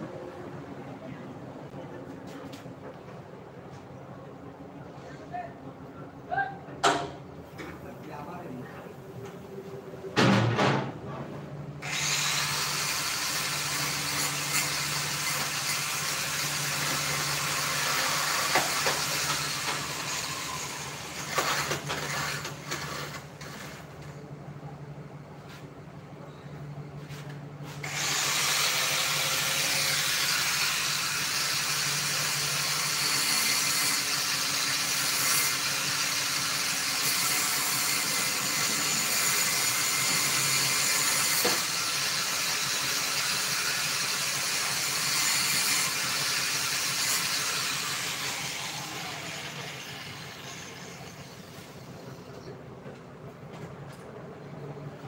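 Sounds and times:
angle grinder grinding metal: 11.8s - 23.9s, 27.8s - 52.2s.

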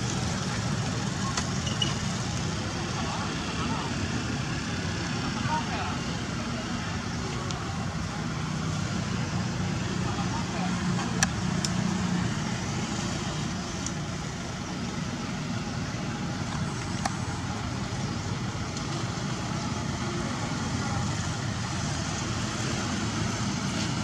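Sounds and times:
low outdoor rumble: 0.0s - 24.0s
faint sharp clicks: 13.8s - 14.0s.

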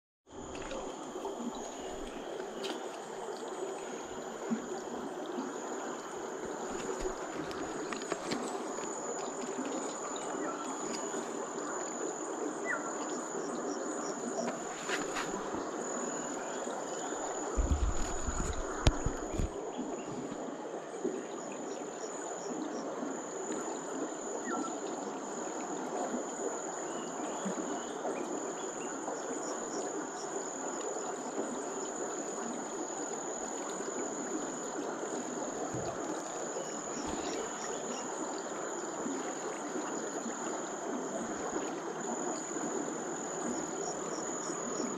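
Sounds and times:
insects droning: 0.3s - 44.9s
river flowing: 0.3s - 44.9s
low bumps: 17.6s - 19.6s.

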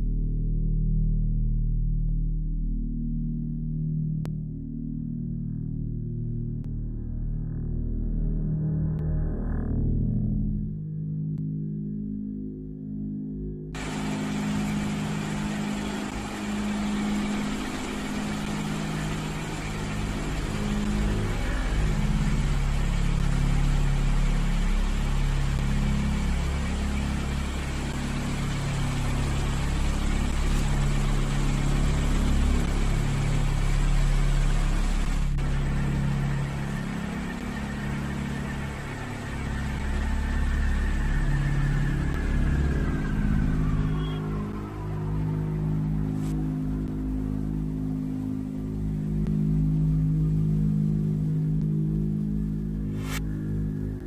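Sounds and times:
ceiling fan whirring and wobbling: 13.8s - 54.0s.

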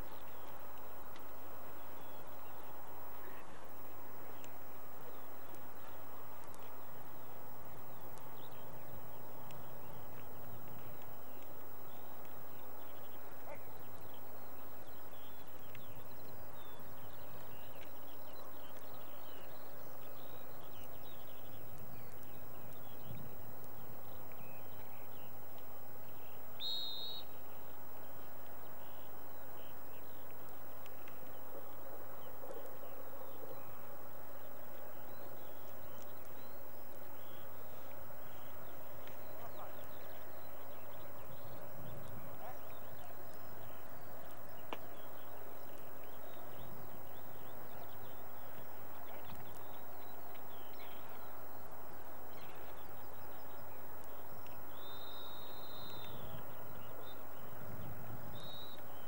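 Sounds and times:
faint low hum: 0.0s - 59.0s
hiss-like background: 0.0s - 59.0s
small bird chirps: 26.6s - 27.3s.

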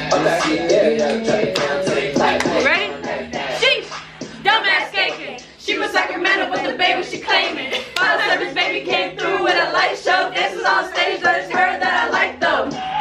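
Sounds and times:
young women singing together: 0.0s - 13.0s.

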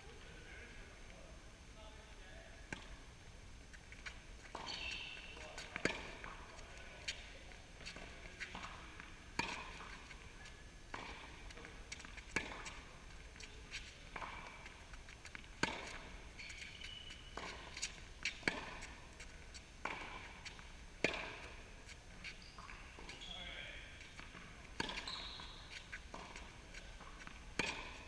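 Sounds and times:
tennis ball struck by racket: 5.6s - 6.4s, 12.0s - 12.8s, 15.6s - 16.2s, 17.4s - 18.9s, 19.8s - 21.6s, 26.1s - 28.0s.

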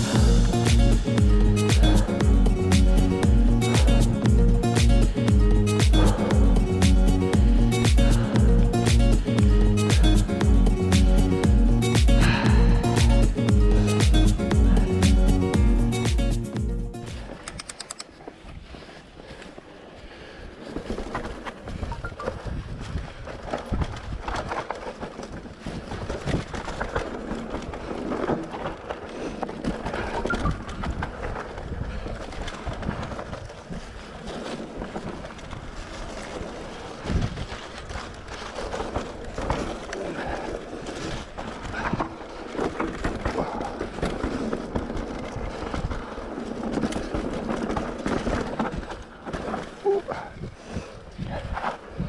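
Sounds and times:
bike tyre noise on dirt: 0.0s - 52.0s
bike knocking and rattling: 20.6s - 52.0s
wind on microphone: 21.6s - 24.6s, 30.0s - 38.4s, 49.9s - 52.0s.

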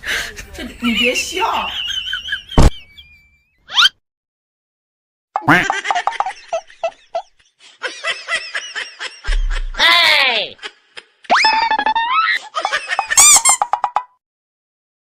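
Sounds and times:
person laughing: 5.6s - 13.5s.

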